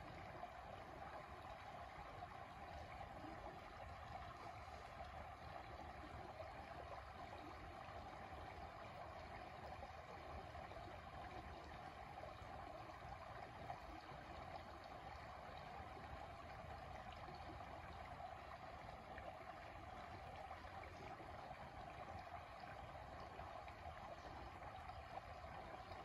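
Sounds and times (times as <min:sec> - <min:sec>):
creek water flowing over rocks: 0:00.0 - 0:26.0.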